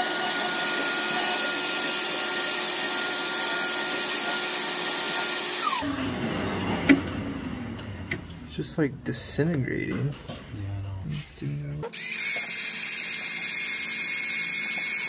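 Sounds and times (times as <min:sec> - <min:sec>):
electric drill whining: 0:00.0 - 0:05.9, 0:11.9 - 0:15.0.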